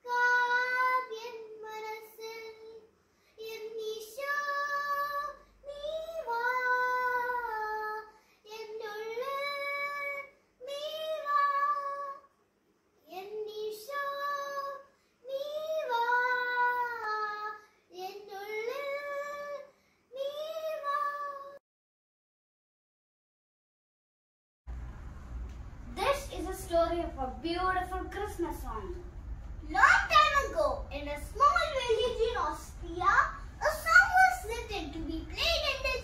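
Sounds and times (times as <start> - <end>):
girl singing unaccompanied: 0.0 - 12.3, 13.0 - 21.6, 29.6 - 36.0.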